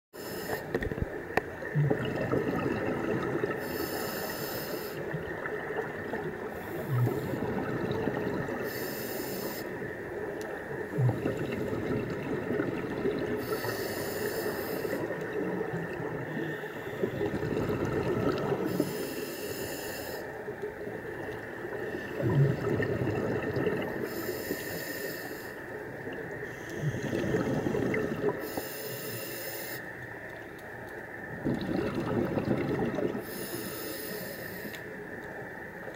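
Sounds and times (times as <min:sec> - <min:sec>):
regulator inhalation hiss: 0:00.2 - 0:00.8, 0:03.6 - 0:05.2, 0:08.6 - 0:09.9, 0:13.4 - 0:15.2, 0:18.7 - 0:20.5, 0:24.0 - 0:25.8, 0:26.4 - 0:30.0, 0:33.2 - 0:35.0
exhaled bubbles gurgling: 0:00.2 - 0:29.2, 0:31.2 - 0:34.3.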